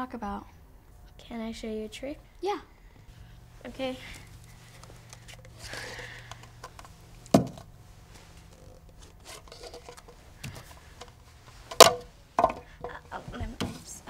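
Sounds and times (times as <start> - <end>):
steady low hum: 0.0 - 14.0
paper plates rustling: 4.0 - 14.0
light clicks of plastic cups: 4.4 - 7.7, 8.4 - 12.9.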